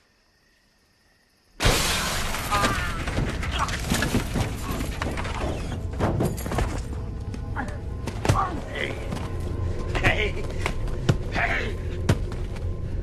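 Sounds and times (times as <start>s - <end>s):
crash with glass shattering: 1.6s - 4.9s.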